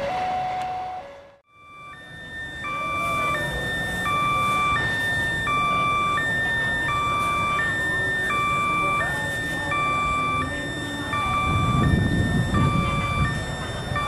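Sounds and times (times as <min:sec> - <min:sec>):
two-tone railway warning alarm: 0:00.0 - 0:14.0.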